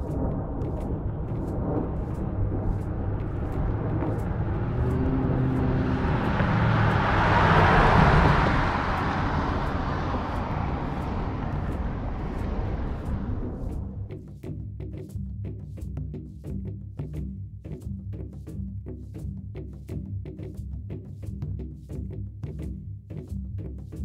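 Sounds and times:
car engine driving past: 0.0s - 14.1s
road noise: 0.0s - 14.2s.

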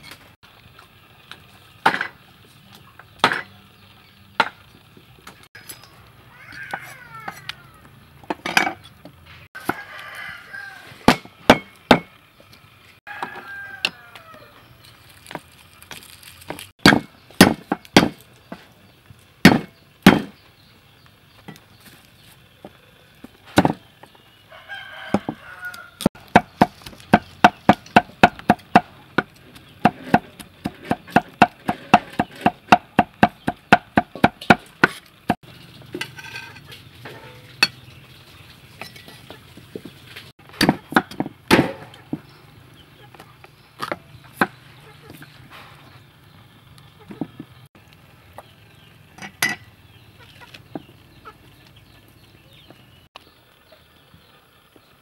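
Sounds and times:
cleaver chopping on wooden block: 16.8s - 18.2s, 19.4s - 20.4s.

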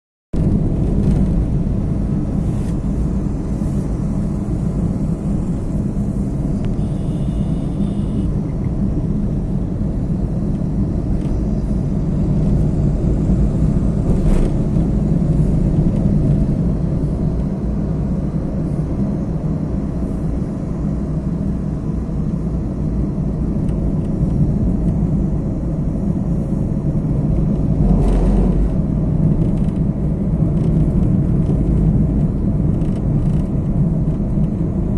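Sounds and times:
car engine and road noise: 0.4s - 34.9s
faint high tone: 6.8s - 8.3s.

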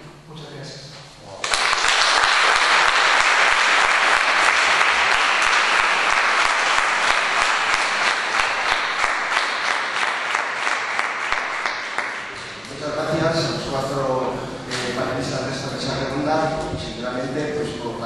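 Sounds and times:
audience applauding: 1.4s - 12.6s.

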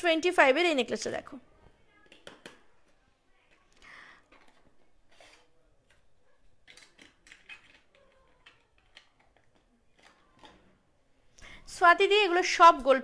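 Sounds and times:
jewellery clicking and rustling: 5.8s - 10.8s.

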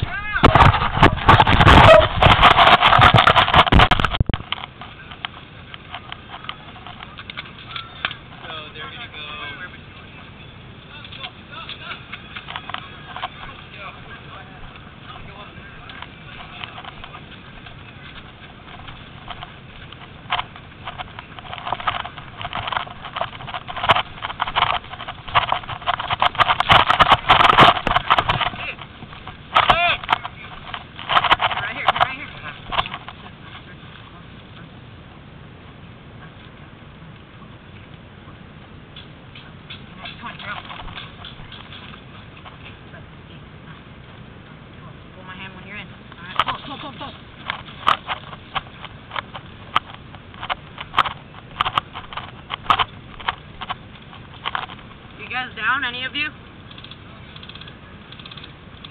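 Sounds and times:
faint scattered clicks: 0.2s - 34.8s, 38.9s - 58.9s
crunching over rocky gravel: 15.8s - 33.8s, 46.1s - 55.8s.

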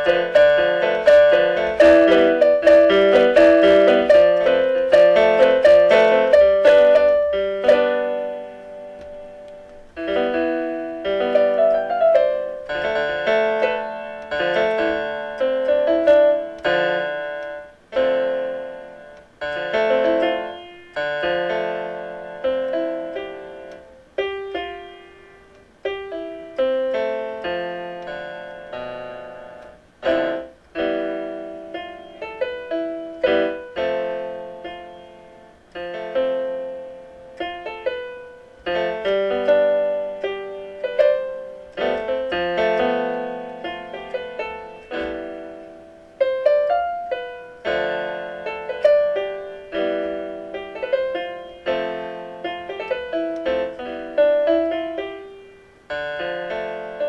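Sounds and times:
piano music: 0.0s - 57.0s.

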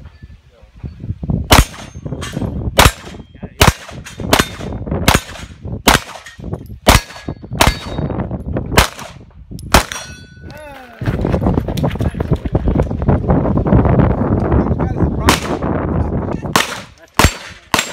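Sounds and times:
handgun shots: 2.8s - 8.0s, 16.5s - 17.9s.

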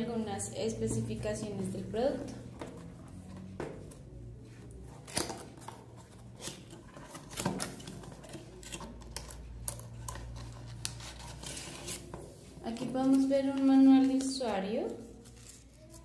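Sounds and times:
cardboard scraping and rustling: 10.3s - 12.9s.

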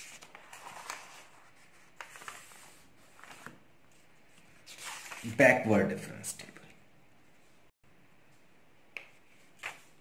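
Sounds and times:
paper rustling: 0.0s - 5.4s, 9.2s - 10.0s.

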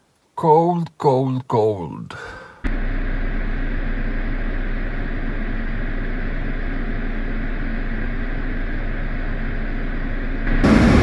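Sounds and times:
vehicle engine rumble: 2.7s - 11.0s.

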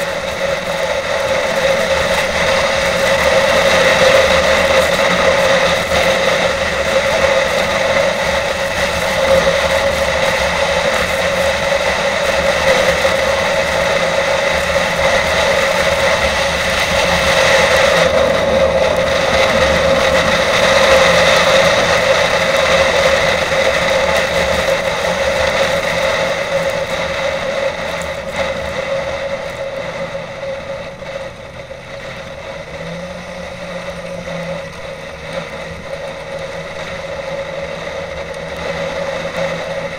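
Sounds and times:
snowmobile engine drone: 0.0s - 39.9s.

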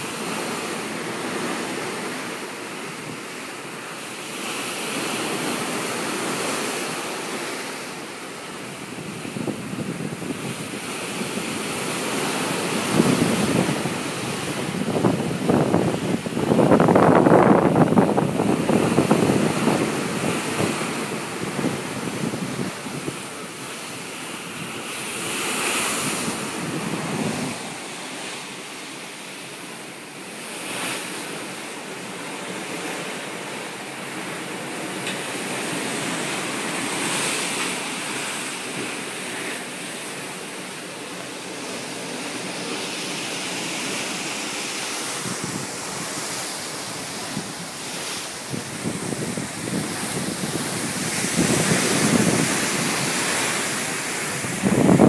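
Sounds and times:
sea water rushing along hull: 0.0s - 55.0s
wind buffeting microphone: 8.7s - 28.9s, 41.3s - 55.0s.

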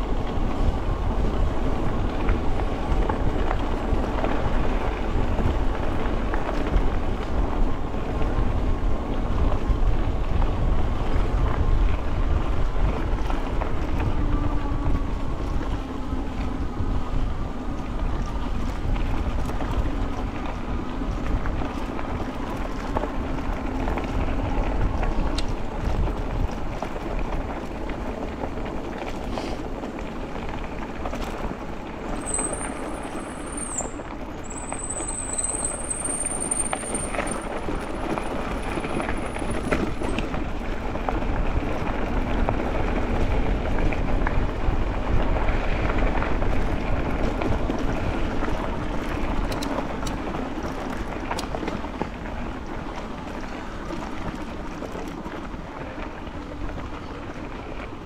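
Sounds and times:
wind on microphone: 0.0s - 30.3s
bicycle tyre noise: 0.0s - 58.0s.

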